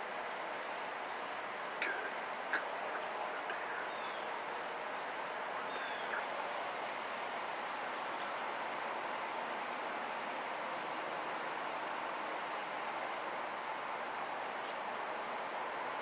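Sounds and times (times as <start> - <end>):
outdoor background hush: 0.0 - 16.0
faint bird chirps: 1.8 - 4.4, 5.6 - 6.6.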